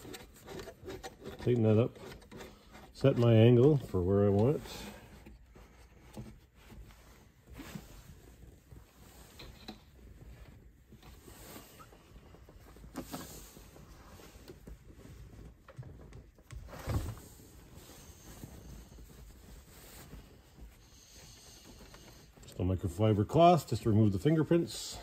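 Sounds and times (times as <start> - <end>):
plastic knob rubs and clicks: 0.0 - 4.6.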